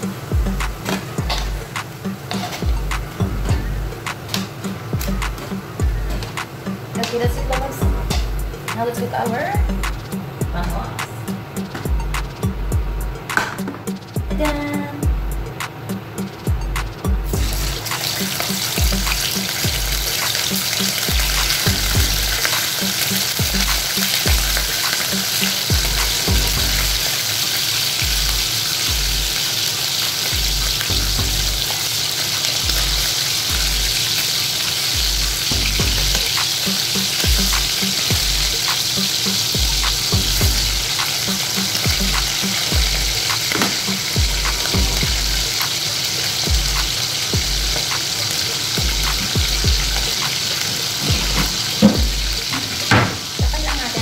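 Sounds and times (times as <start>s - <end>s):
fish sizzling in hot oil: 0.0s - 3.1s, 17.3s - 54.0s.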